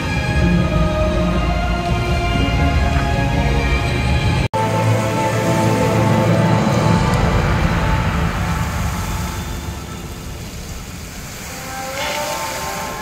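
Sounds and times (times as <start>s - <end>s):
fountain show music: 0.0s - 13.0s
loud low rumble: 4.0s - 11.3s.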